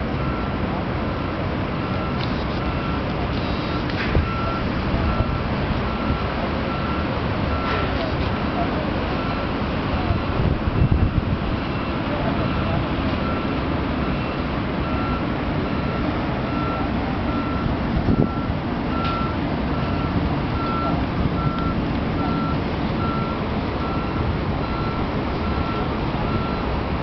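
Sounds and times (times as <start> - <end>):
distant city noise: 0.0 - 27.0
reversing alarm beeping: 0.1 - 0.6, 1.8 - 26.8.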